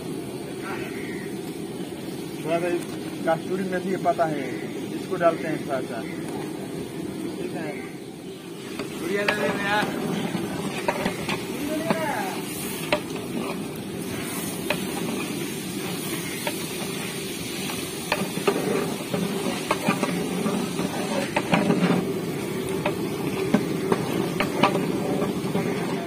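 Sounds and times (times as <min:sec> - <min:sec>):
ladle stirring thick gravy: 0:08.5 - 0:11.6, 0:12.3 - 0:26.0.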